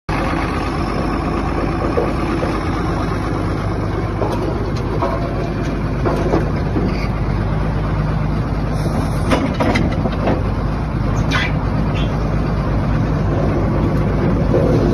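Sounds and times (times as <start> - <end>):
engine running steadily: 0.1 - 14.9.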